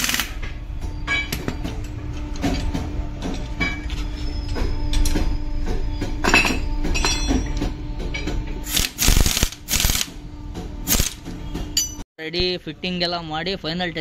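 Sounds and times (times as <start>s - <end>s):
steel tools clinking on metal: 6.2s - 8.3s, 11.7s - 12.0s
impact wrench running: 8.7s - 10.2s.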